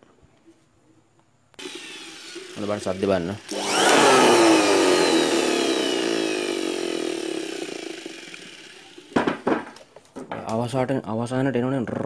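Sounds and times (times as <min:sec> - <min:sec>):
blower motor whine: 0:01.6 - 0:09.4.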